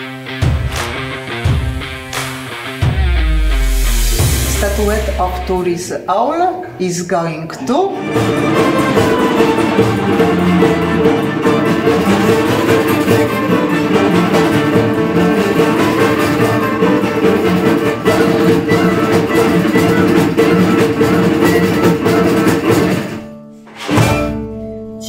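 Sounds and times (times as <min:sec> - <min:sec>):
hand drums: 0:00.0 - 0:05.8, 0:08.0 - 0:23.2
steady held drone note: 0:02.9 - 0:06.0
bowed string instruments: 0:07.6 - 0:24.9
flute: 0:08.1 - 0:14.5, 0:15.8 - 0:22.9.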